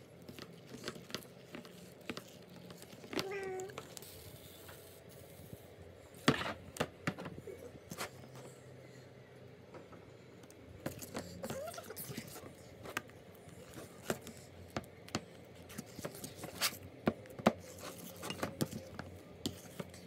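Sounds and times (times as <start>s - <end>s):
spoon scraping slime: 0.2s - 5.4s, 17.5s - 20.0s.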